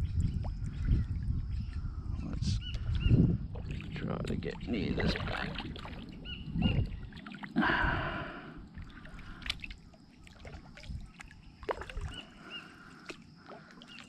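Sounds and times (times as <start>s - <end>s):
water splashing from paddling: 3.6s - 7.8s, 8.8s - 14.0s.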